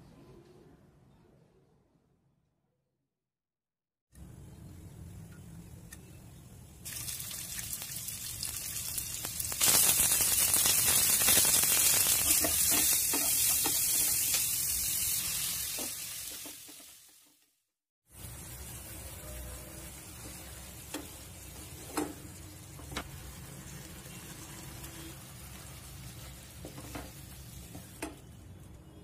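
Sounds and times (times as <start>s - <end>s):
oil sizzling in a pan: 6.8s - 17.4s, 18.1s - 28.3s.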